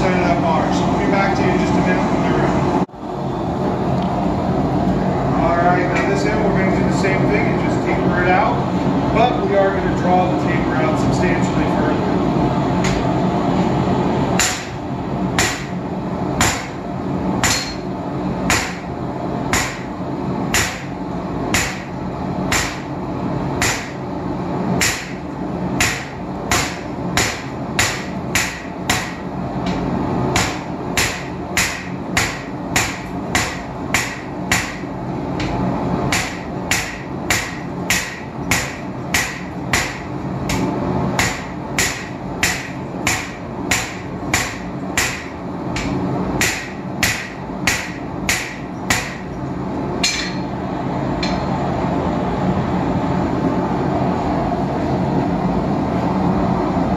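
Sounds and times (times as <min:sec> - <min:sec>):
hammer striking steel on anvil: 0:14.4 - 0:14.8, 0:15.4 - 0:15.7, 0:16.4 - 0:16.8, 0:17.4 - 0:17.9, 0:18.5 - 0:18.9, 0:19.5 - 0:19.9, 0:20.5 - 0:20.9, 0:21.5 - 0:21.9, 0:22.5 - 0:22.9, 0:23.6 - 0:24.0, 0:24.8 - 0:25.2, 0:25.8 - 0:49.3, 0:50.0 - 0:50.5, 0:51.2 - 0:51.5.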